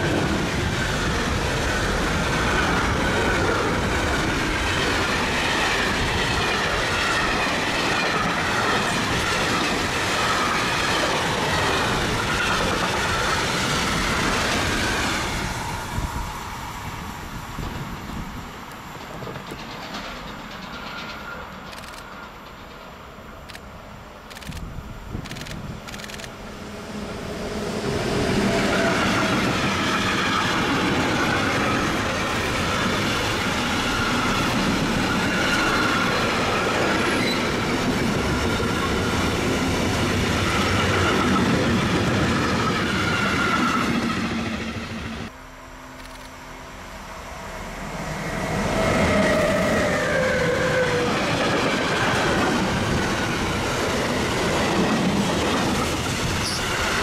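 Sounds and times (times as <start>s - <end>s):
train wheel squeal: 0.0s - 17.0s, 18.8s - 23.1s, 27.8s - 45.3s, 47.8s - 55.0s, 55.7s - 57.0s
freight train wheels clattering on rails: 17.6s - 23.2s.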